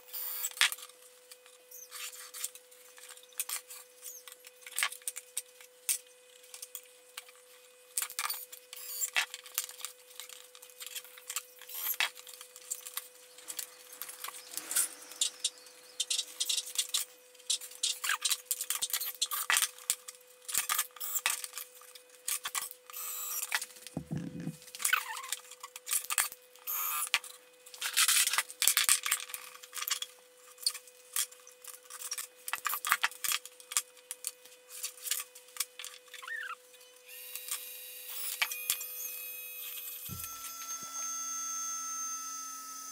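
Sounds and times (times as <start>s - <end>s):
dull thump: 24.0s - 24.6s.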